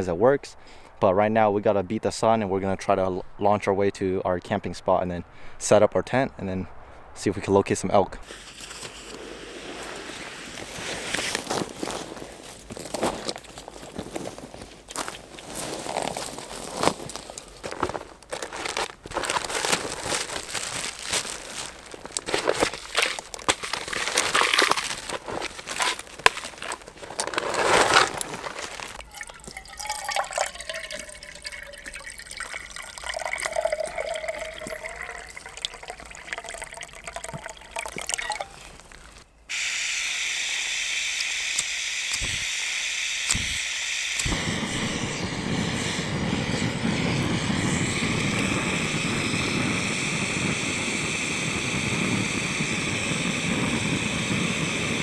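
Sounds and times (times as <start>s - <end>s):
gas burner hissing: 8.2s - 12.3s, 39.5s - 55.0s
water pouring into a cup: 28.9s - 38.9s.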